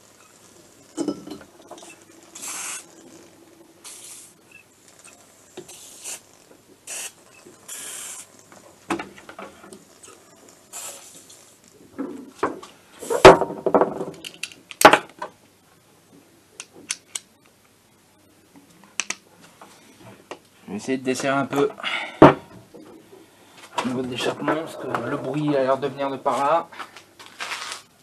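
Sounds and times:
aerosol can spraying: 1.8s - 3.0s, 3.8s - 4.4s, 5.0s - 8.4s, 10.0s - 11.6s
knocks and clatter on workbench: 12.0s - 15.4s, 22.2s - 22.7s.

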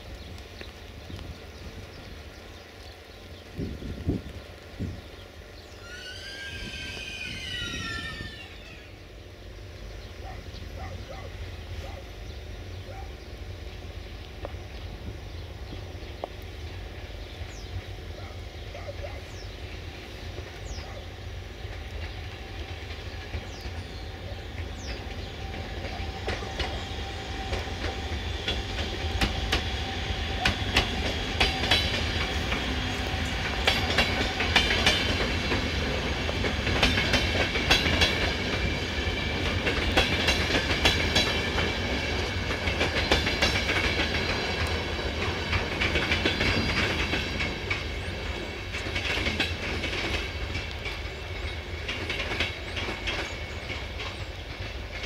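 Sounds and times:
train wheels clacking over rail joints: 21.5s - 55.0s.

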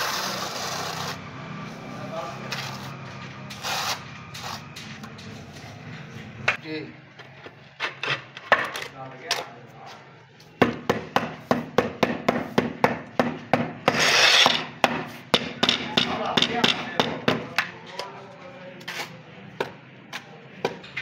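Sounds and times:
trowel scraping adhesive: 0.0s - 1.2s, 2.4s - 5.3s, 13.8s - 15.3s, 18.8s - 19.3s.

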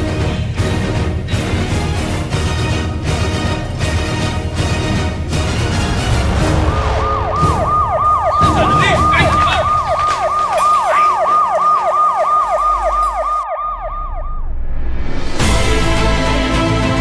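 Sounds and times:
siren yelping: 6.4s - 14.6s.

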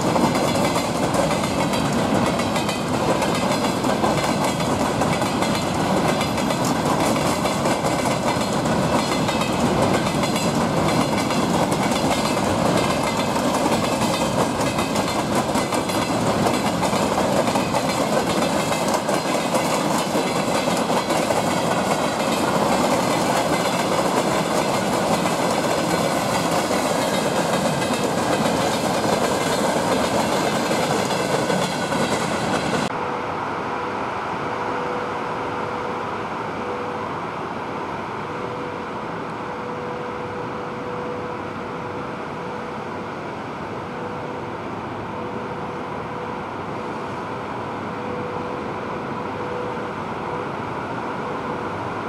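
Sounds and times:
train wheels clicking on rails: 0.0s - 33.0s.

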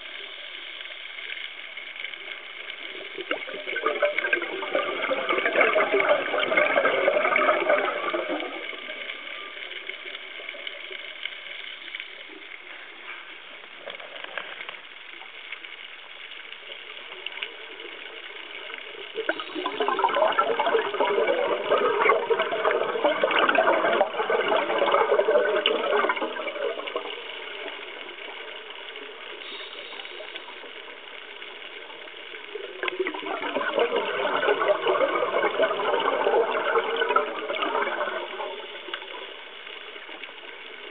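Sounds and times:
gurgling exhaust bubbles underwater: 0.0s - 40.9s
regulator hiss: 27.1s - 33.1s.

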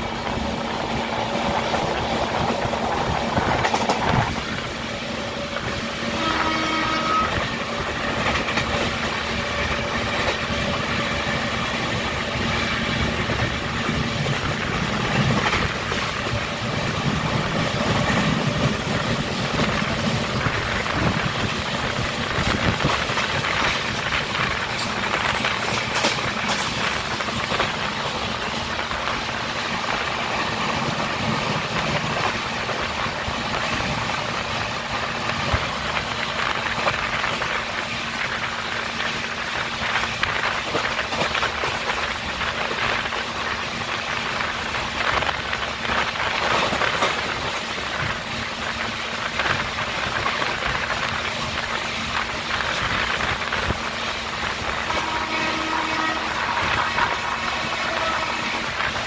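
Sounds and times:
wind rushing: 0.0s - 6.0s, 7.3s - 39.2s
train clatters: 0.0s - 59.0s
train wheels rolling on rails: 0.0s - 59.0s.

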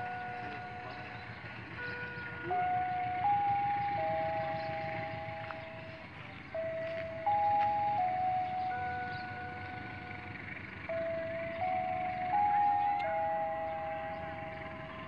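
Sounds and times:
electronic chime melody: 0.0s - 15.0s.

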